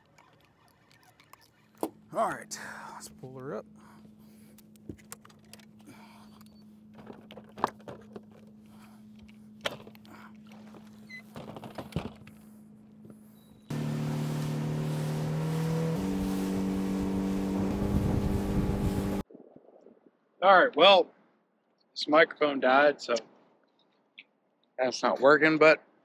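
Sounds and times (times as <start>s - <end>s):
outboard motor running: 13.7s - 19.2s.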